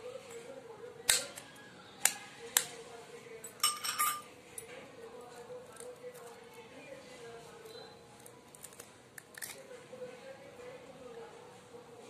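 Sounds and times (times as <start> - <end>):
kitchenware clicks: 3.5 - 4.3
ringing clinks: 3.5 - 4.3.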